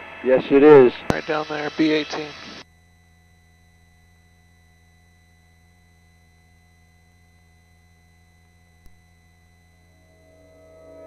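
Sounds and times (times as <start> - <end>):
music: 9.9 - 11.0.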